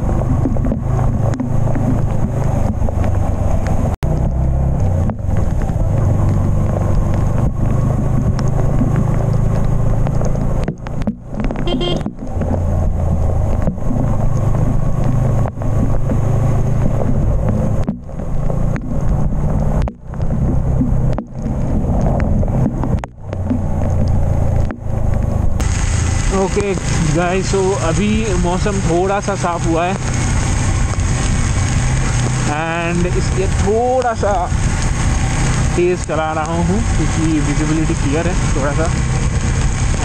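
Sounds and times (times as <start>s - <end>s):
motorcycle engine running: 0.0s - 40.0s
wind rushing over microphone: 0.0s - 40.0s.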